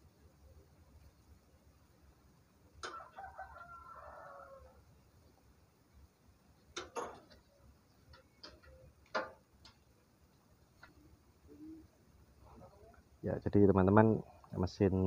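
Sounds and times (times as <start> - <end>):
rooster crowing: 2.8 - 4.9
sharp clicks and knocks: 8.1 - 9.9.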